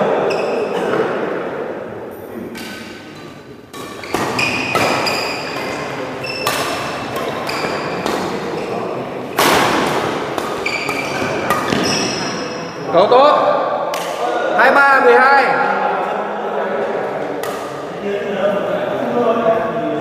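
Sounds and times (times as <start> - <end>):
rackets hitting shuttlecock: 2.5 - 12.7, 13.7 - 14.3, 17.4 - 17.8
shoes squeaking on court: 3.9 - 8.9, 10.4 - 12.7.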